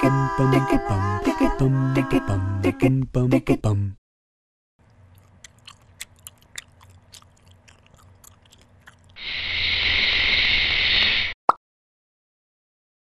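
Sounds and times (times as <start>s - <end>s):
gum chewing clicks and smacks: 4.8s - 9.2s
loud steady hiss: 9.2s - 11.4s.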